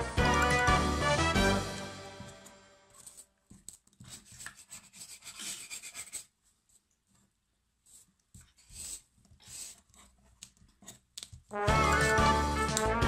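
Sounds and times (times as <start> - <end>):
plastic spatula scraping play dough: 3.0 - 6.8, 7.9 - 11.2.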